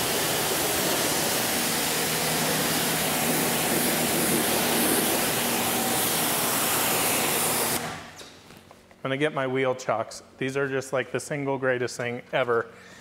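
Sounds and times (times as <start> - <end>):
pressure washer spray hissing: 0.0 - 7.9.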